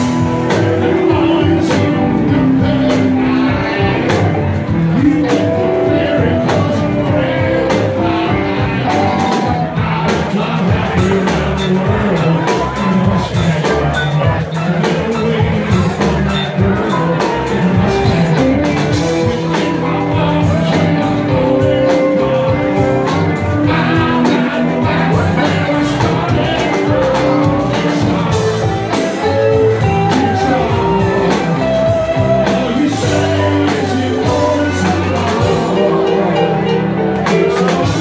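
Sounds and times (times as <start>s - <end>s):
drum kit: 0.0s - 38.0s
electric guitars: 0.0s - 38.0s
keyboards: 0.0s - 38.0s.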